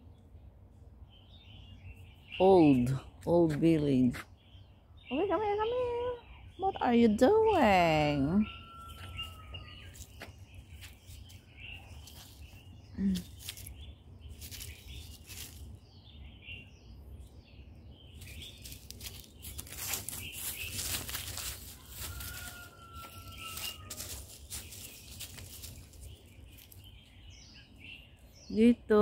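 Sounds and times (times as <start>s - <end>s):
birds chirping faintly: 0.0s - 29.0s
dry leaves rustling underfoot: 8.5s - 16.2s, 18.1s - 28.3s.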